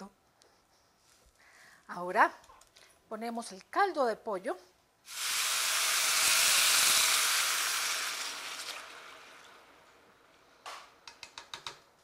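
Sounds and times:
broth sizzling in hot pan: 5.1 - 9.7.

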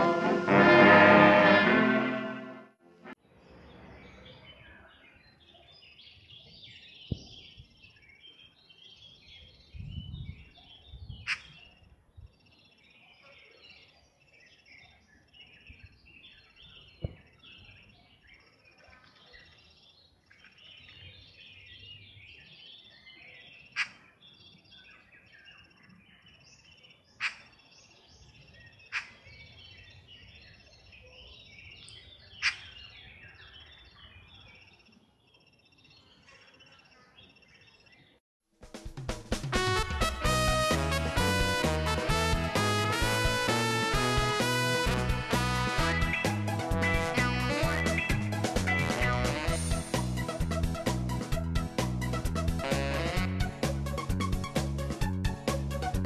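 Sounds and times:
birds chirping and singing: 3.9 - 38.2, 45.8 - 49.9.

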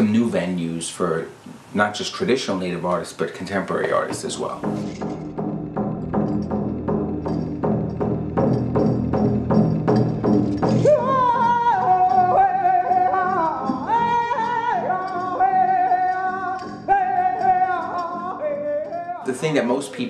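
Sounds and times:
steady drumming: 3.5 - 19.8
high singing voice: 10.8 - 19.8.

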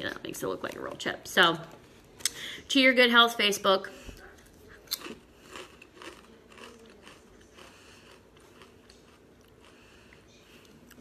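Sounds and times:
chewing crisp potato chip: 4.5 - 11.0.

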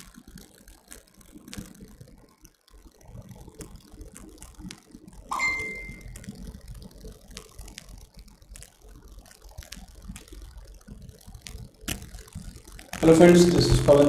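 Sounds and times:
faint scattered clicks: 0.0 - 14.0
short high ringing tone: 5.3 - 6.2.

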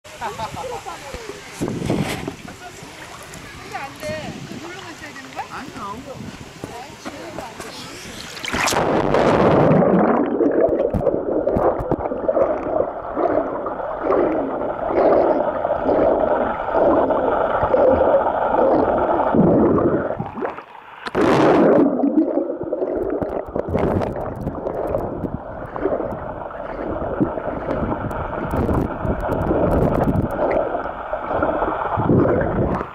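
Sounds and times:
water splash with hiss: 0.1 - 9.8
muffled underwater rushing: 6.2 - 32.9.

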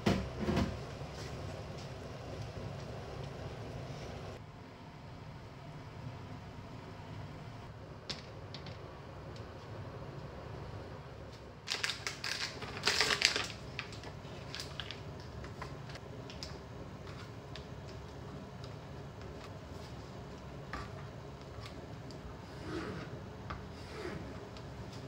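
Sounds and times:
plastic packaging crinkling: 11.6 - 17.7.

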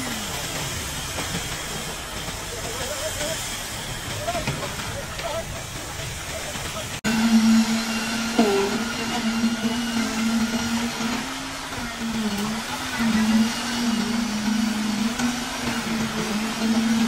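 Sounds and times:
small motor humming: 7.1 - 17.0.

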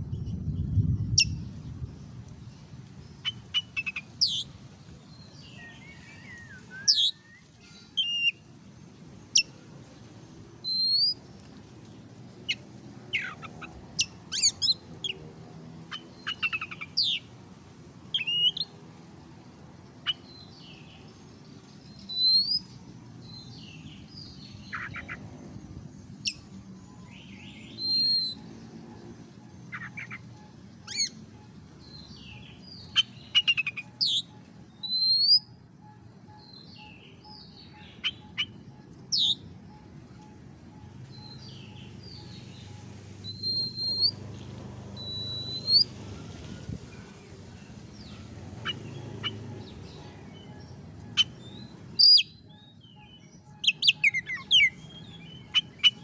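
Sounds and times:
bird singing whistles and clicks: 3.2 - 4.5, 6.0 - 7.4, 10.6 - 11.6, 13.2 - 14.8, 15.9 - 17.3, 21.9 - 22.8, 27.8 - 28.4, 32.8 - 35.5, 36.4 - 40.4, 41.2 - 44.2, 45.0 - 45.9, 52.0 - 56.0.

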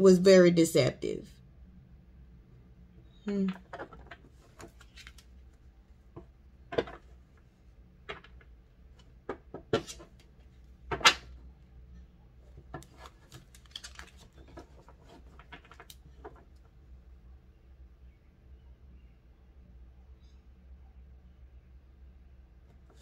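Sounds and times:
faint low hum: 0.0 - 23.0
cards clicking and tapping on table: 9.2 - 10.1.

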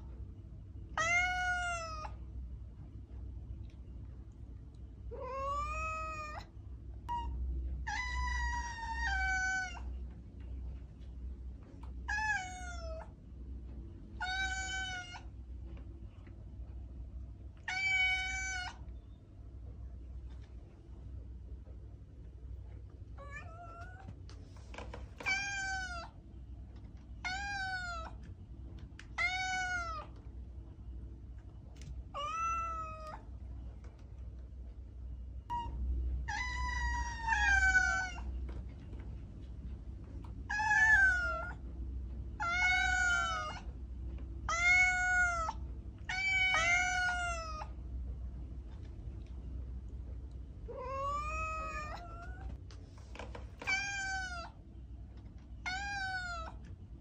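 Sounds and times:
low steady hum: 0.0 - 57.0
cat meowing: 1.0 - 2.2, 5.1 - 6.5, 7.1 - 9.9, 12.1 - 13.1, 14.2 - 15.3, 17.6 - 18.8, 23.2 - 24.1, 25.2 - 26.2, 27.2 - 28.2, 29.1 - 30.2, 32.1 - 33.2, 35.5 - 38.3, 40.5 - 41.6, 42.4 - 43.7, 44.5 - 47.7, 50.7 - 52.6, 53.6 - 54.6, 55.6 - 56.6.

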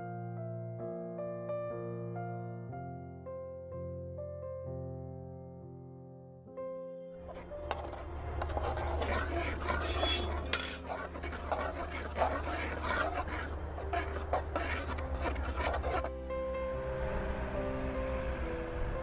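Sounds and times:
metal spoon scraping paste in pan: 7.2 - 16.1.

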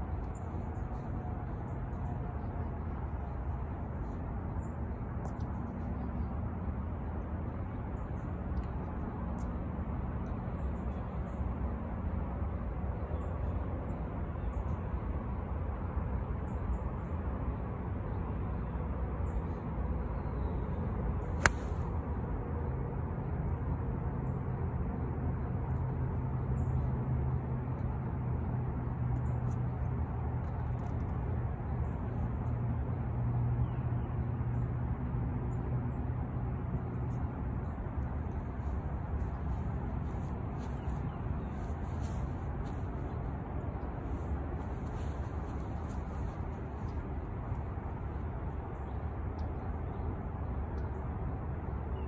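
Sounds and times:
low outdoor rumble: 0.0 - 52.0
golf club striking ball: 21.4 - 21.8
low hum: 36.8 - 51.8.

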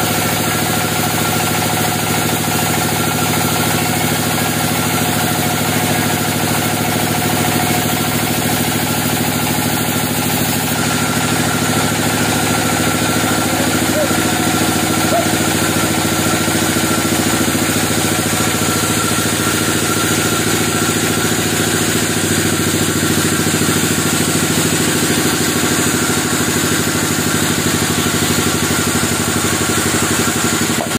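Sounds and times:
band sawmill droning: 0.0 - 30.9.

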